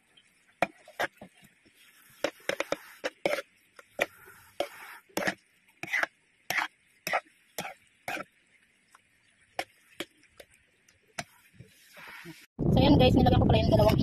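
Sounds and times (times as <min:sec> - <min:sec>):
metal spoon scraping a pan: 0:00.6 - 0:08.3.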